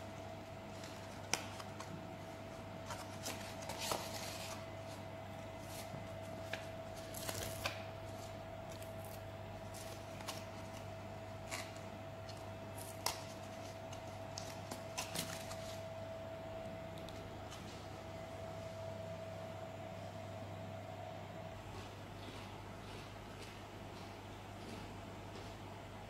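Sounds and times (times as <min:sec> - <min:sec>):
faint steady hum: 0:00.0 - 0:26.0
cardboard and paper rustling: 0:02.8 - 0:15.9.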